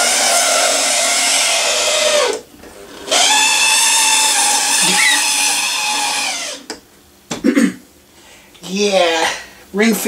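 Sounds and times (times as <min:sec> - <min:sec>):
model train motor whining: 0:03.1 - 0:06.6.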